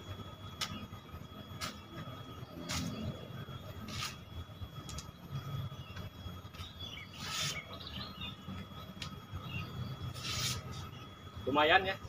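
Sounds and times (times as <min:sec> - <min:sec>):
faint bird chirps: 0:05.4 - 0:11.6.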